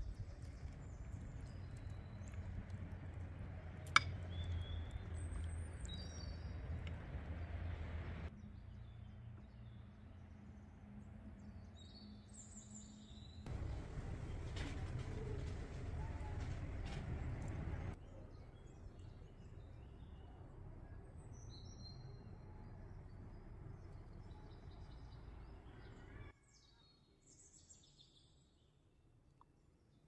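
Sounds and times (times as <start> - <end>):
birds chirping: 0.0 - 10.5, 11.4 - 26.3
low background rumble: 13.5 - 26.0.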